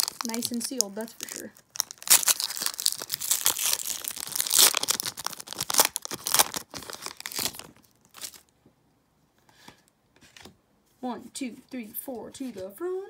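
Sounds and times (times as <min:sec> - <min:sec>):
foil wrapper tearing and crinkling: 0:00.0 - 0:08.5.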